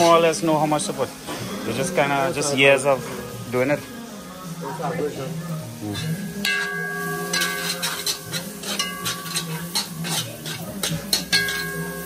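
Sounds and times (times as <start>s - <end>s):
metal spoon scraping metal pot: 6.0s - 12.0s.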